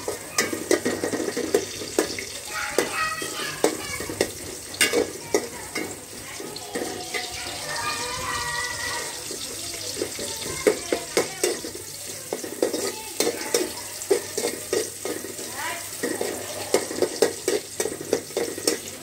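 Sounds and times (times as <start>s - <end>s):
cooking hiss: 0.0s - 19.0s
metal spoon scraping a pot: 11.1s - 19.0s.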